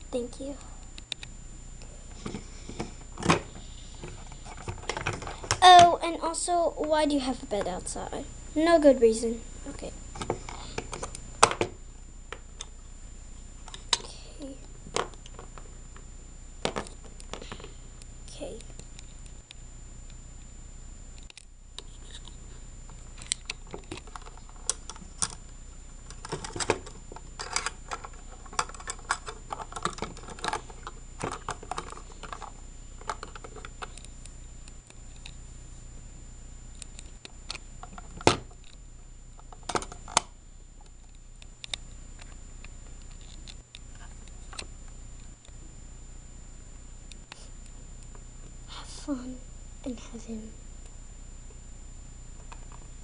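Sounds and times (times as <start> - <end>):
faint hum with high whine: 0.0 - 53.0
plastic toys clicking and clattering: 26.1 - 32.5.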